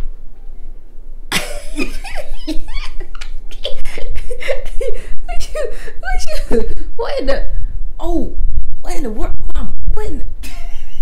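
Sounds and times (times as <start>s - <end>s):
woman laughing: 1.3s - 6.8s, 10.4s - 11.0s.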